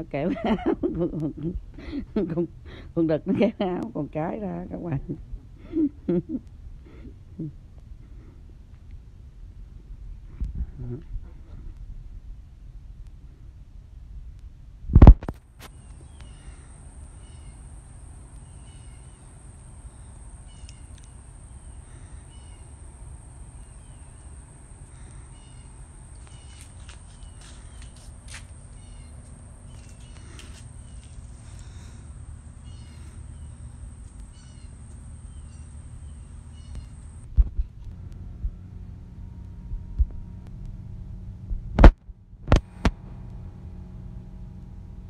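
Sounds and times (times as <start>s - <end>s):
low steady rumble: 0.0s - 45.0s
birds chirping: 18.4s - 37.3s.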